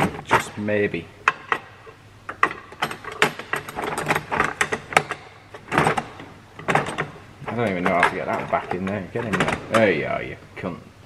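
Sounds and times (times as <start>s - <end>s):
metal tools clicking and rattling: 1.2s - 10.0s.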